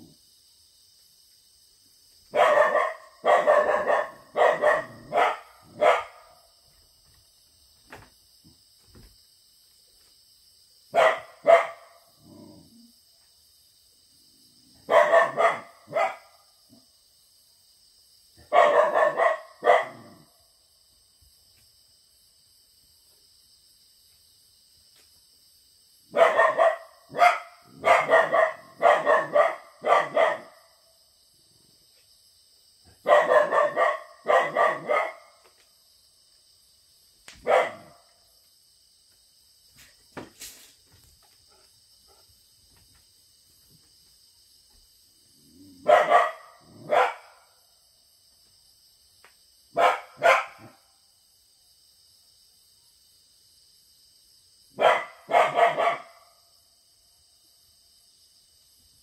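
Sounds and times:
crickets chirping: 0:00.0 - 0:59.0
puppy barking: 0:02.3 - 0:06.4, 0:10.9 - 0:12.0, 0:14.9 - 0:16.4, 0:18.4 - 0:20.2, 0:26.1 - 0:30.7, 0:33.0 - 0:35.4, 0:37.4 - 0:38.0, 0:45.8 - 0:47.5, 0:49.8 - 0:50.8, 0:54.8 - 0:56.3.

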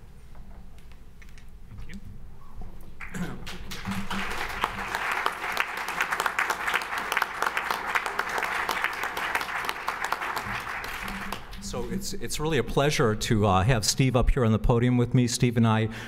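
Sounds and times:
audience applauding: 0:03.0 - 0:11.9.

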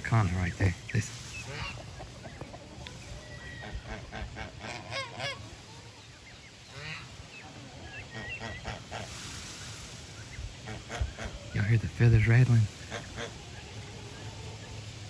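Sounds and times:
poultry honking calls: 0:00.0 - 0:15.0
small poultry calls: 0:00.2 - 0:15.0.

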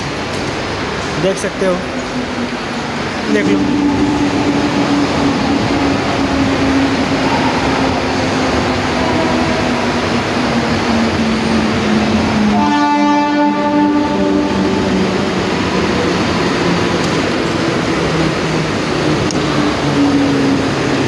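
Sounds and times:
electric train rumbling: 0:00.0 - 0:21.0
train motor humming: 0:00.0 - 0:21.0.

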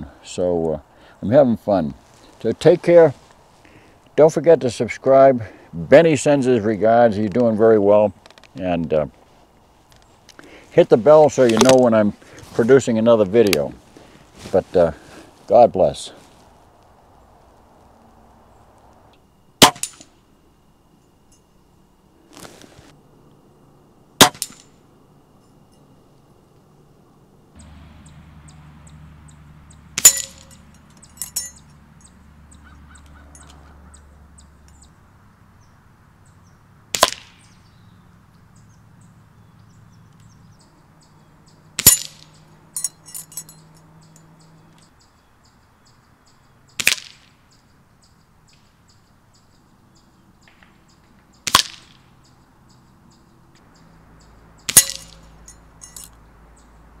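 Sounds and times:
air rifle shots: 0:19.6 - 0:20.1, 0:24.2 - 0:24.7, 0:30.0 - 0:30.6, 0:36.9 - 0:37.6, 0:41.8 - 0:42.3, 0:46.8 - 0:47.3, 0:51.4 - 0:52.0
pellets striking steel target: 0:19.6 - 0:20.2, 0:24.2 - 0:24.8, 0:30.0 - 0:31.6, 0:36.9 - 0:37.5, 0:41.8 - 0:43.5, 0:46.8 - 0:47.3, 0:51.4 - 0:52.1, 0:54.7 - 0:56.1
target clinking: 0:19.6 - 0:20.2, 0:24.2 - 0:25.9, 0:30.0 - 0:31.8, 0:41.8 - 0:43.9, 0:54.6 - 0:56.2.

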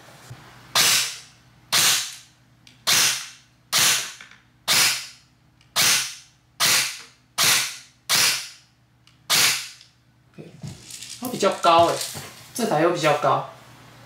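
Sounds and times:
airsoft rifle sharp cracks: 0:00.8 - 0:02.2, 0:02.9 - 0:05.1, 0:05.8 - 0:08.6, 0:09.3 - 0:09.8.

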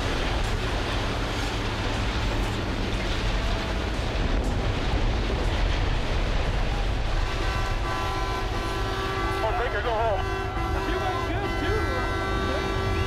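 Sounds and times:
diesel machinery rumbling: 0:00.0 - 0:13.0
horn sounding: 0:07.2 - 0:13.0.

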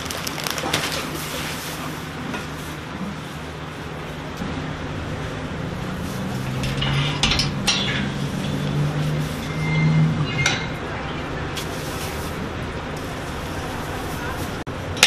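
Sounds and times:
steady low hum: 0:01.2 - 0:15.0
cleaning tool clinking: 0:06.2 - 0:10.9.

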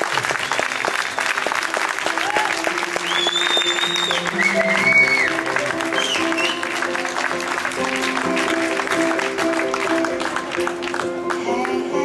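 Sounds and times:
audience applauding: 0:00.0 - 0:11.9
high whistles: 0:03.0 - 0:06.7
background music with held chords: 0:03.8 - 0:12.0.

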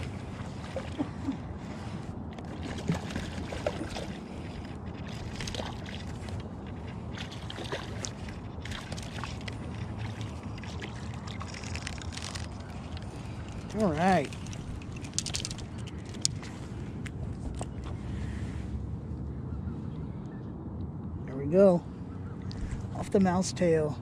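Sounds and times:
low outdoor rumble: 0:00.0 - 0:24.0
fish splashing at water surface: 0:02.4 - 0:16.4
small clicks: 0:14.3 - 0:17.7.

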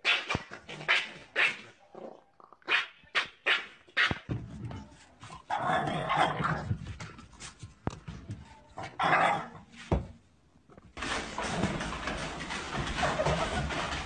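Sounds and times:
dog barking: 0:02.7 - 0:04.2.

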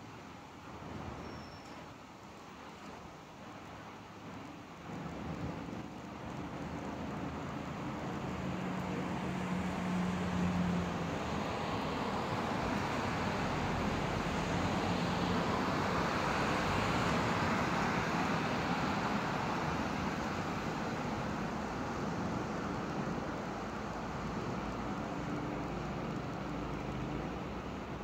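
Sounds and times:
low engine hum: 0:04.2 - 0:28.0.

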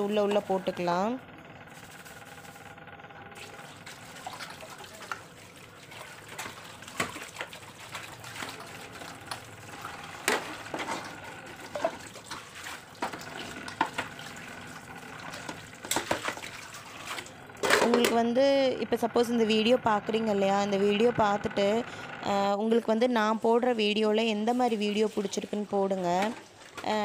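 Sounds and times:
tap water running into sink: 0:03.4 - 0:18.2.

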